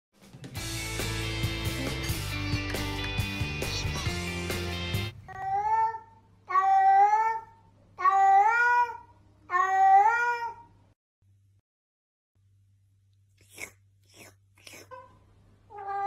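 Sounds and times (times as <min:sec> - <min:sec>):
cat meowing: 0:05.3 - 0:10.7, 0:14.8 - 0:16.0.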